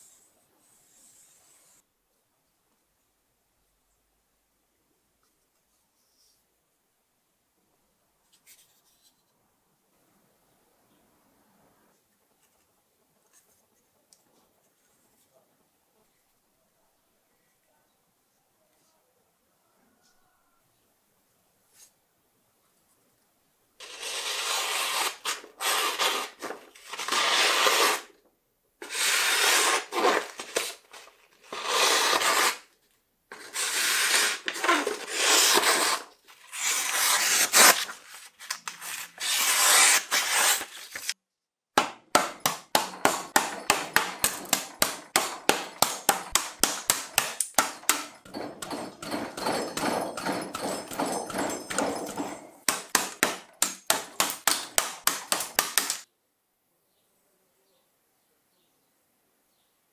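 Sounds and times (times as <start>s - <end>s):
knife slicing paper: 23.8s - 28.1s, 31.4s - 32.7s, 33.4s - 41.2s
knife striking wooden board: 41.8s - 56.0s.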